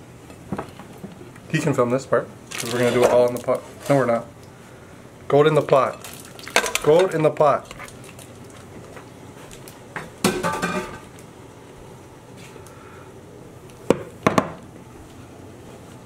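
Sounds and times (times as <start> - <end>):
cooking pot clattering: 10.2 - 11.1.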